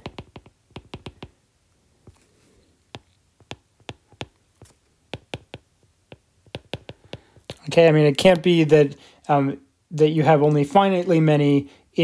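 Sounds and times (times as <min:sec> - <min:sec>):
stylus clicking on tablet screen: 0:00.0 - 0:01.4, 0:02.9 - 0:07.6.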